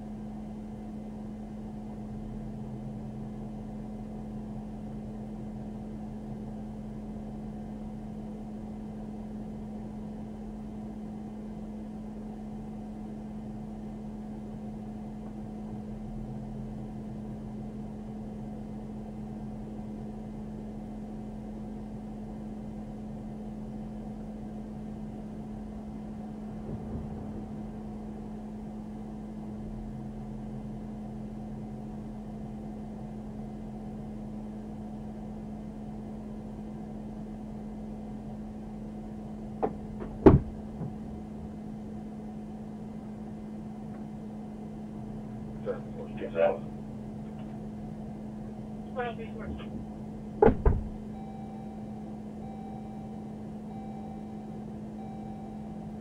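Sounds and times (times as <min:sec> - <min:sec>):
car idling hum and hiss: 0:00.0 - 0:56.0
faint bump: 0:39.6 - 0:41.0.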